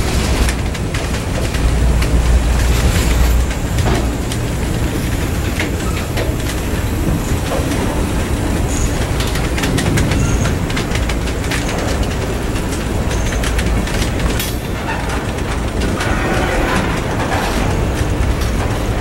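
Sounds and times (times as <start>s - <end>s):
train rumbling past: 0.0s - 19.0s
wheels clicking over rail joints: 0.0s - 19.0s.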